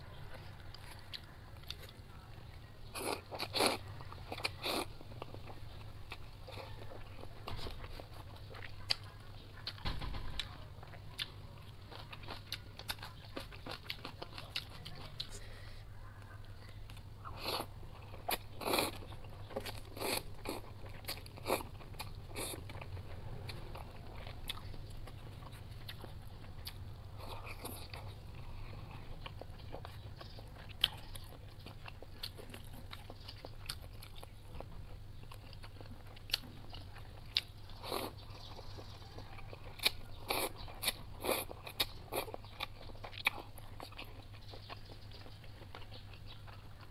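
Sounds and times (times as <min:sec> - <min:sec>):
person chewing noodles: 0:00.0 - 0:09.8, 0:11.1 - 0:15.7, 0:16.6 - 0:46.9.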